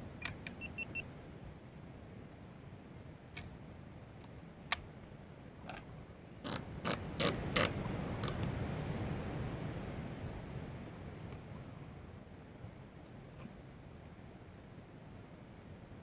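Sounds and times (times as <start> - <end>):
riflescope turret clicks: 0.2 - 0.7.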